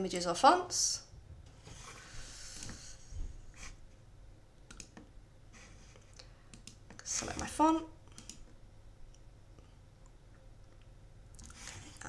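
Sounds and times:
computer mouse clicking: 0:04.7 - 0:05.1, 0:06.5 - 0:07.5, 0:08.1 - 0:08.5.

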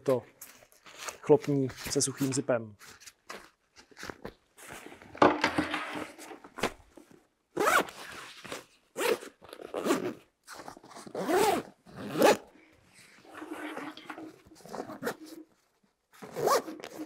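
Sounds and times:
velcro ripping open: 0:07.6 - 0:12.5.

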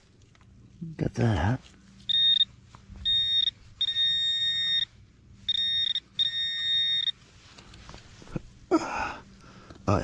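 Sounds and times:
metal detector high tone: 0:02.0 - 0:07.2.

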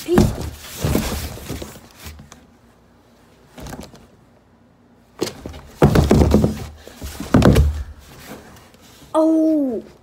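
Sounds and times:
thumps and scuffling in cardboard box: 0:00.0 - 0:02.3, 0:05.2 - 0:08.6.

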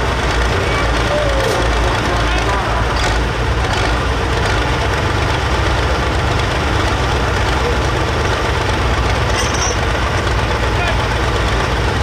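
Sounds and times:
tractor diesel engine idling: 0:00.0 - 0:12.0.

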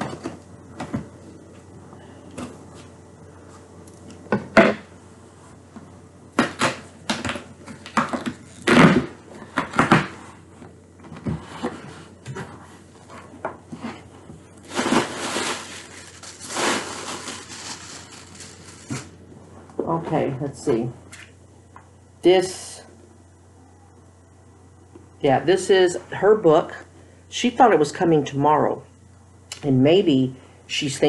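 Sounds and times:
knocks and thumps of packaging: 0:06.4 - 0:10.2
packaging rustling: 0:14.6 - 0:19.2.

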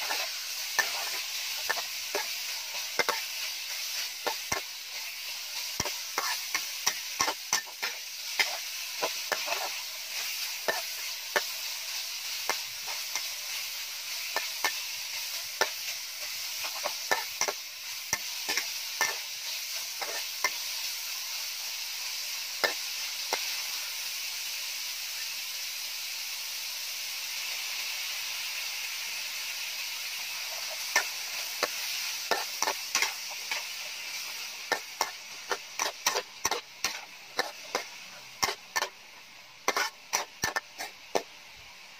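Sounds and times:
metal spatula scraping a wok: 0:00.0 - 0:21.1, 0:30.1 - 0:41.3
meat sizzling in a wok: 0:00.0 - 0:41.9.

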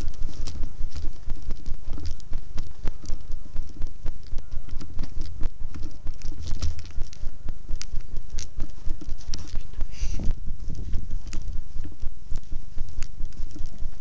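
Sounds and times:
camera jostling rumble: 0:00.0 - 0:14.0
footsteps through dry grass: 0:00.0 - 0:14.0.

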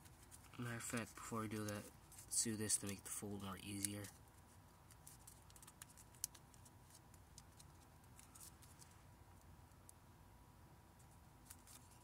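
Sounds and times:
paper being folded and creased: 0:00.0 - 0:03.0.

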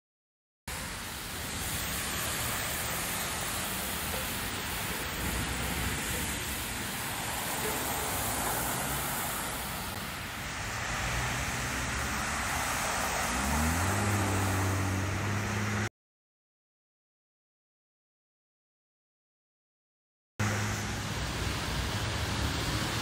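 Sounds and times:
storm water gushing from manhole: 0:00.7 - 0:15.6, 0:20.4 - 0:23.0
vehicle engine humming: 0:00.7 - 0:15.9, 0:20.4 - 0:23.0.

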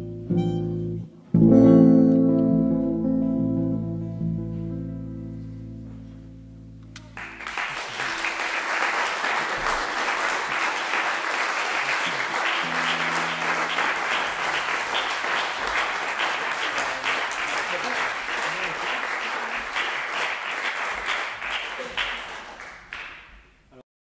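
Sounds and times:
harmonica and guitar chord: 0:00.0 - 0:06.8, 0:12.4 - 0:15.9
audience applause: 0:07.2 - 0:23.3.

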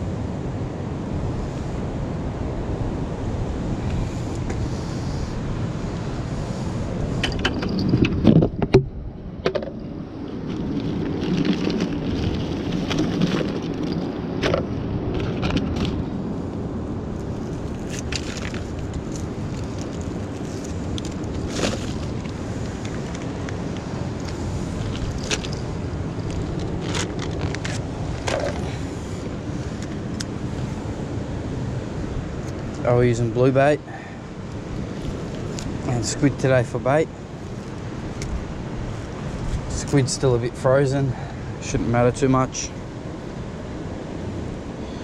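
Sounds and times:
ocean surf: 0:00.0 - 0:45.0
wind on microphone: 0:00.0 - 0:45.0
plastic bags rustling and clicking: 0:26.2 - 0:28.7.

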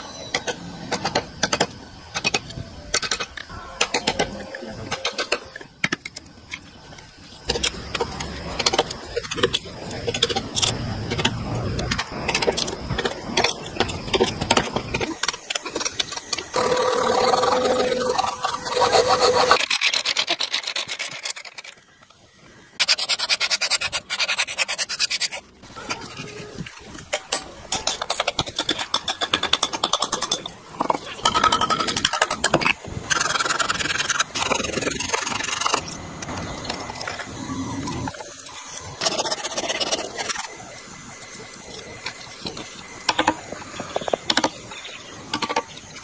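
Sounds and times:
tools scraping wood: 0:07.4 - 0:21.8, 0:22.8 - 0:36.4.

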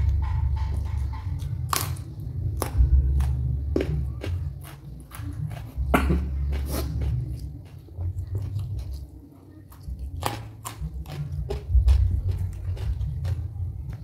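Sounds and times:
low rumble: 0:00.0 - 0:09.2
crunchy vegetable chewing: 0:00.0 - 0:14.0.

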